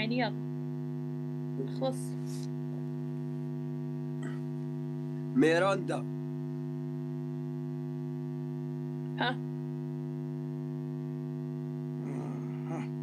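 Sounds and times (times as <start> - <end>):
electrical hum: 0.0 - 13.0
short vocal sound: 4.2 - 4.5, 12.0 - 13.0.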